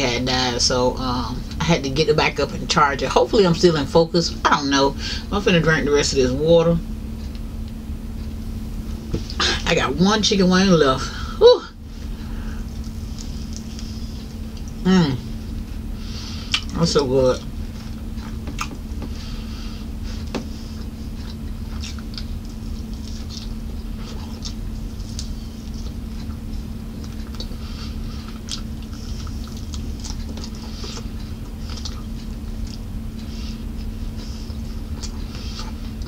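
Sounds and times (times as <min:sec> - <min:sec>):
steady low hum: 0:00.0 - 0:36.0
chewing and lip smacks: 0:12.8 - 0:14.8, 0:16.4 - 0:16.7, 0:17.8 - 0:19.2, 0:20.3 - 0:36.0.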